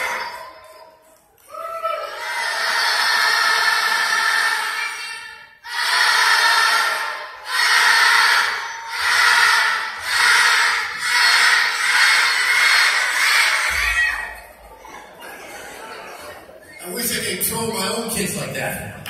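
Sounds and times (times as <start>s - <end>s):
children's choir singing: 2.0s - 16.6s.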